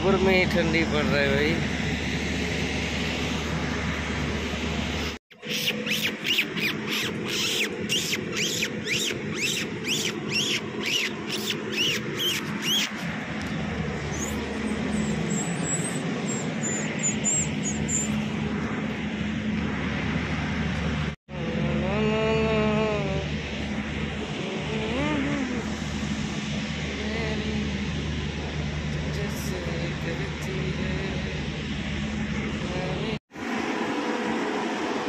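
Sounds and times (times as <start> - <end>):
low machine hum: 0.0 - 35.0
puppies yelping: 5.4 - 13.0, 14.1 - 18.2.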